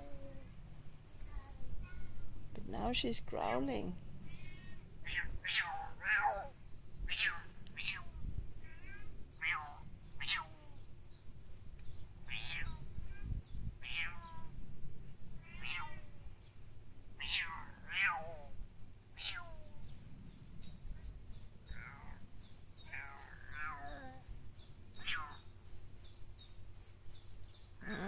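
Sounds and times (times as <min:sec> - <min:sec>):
cat meowing: 0:12.3 - 0:14.5, 0:15.4 - 0:16.1, 0:17.2 - 0:18.5, 0:19.2 - 0:19.7, 0:21.7 - 0:22.2, 0:25.0 - 0:25.4.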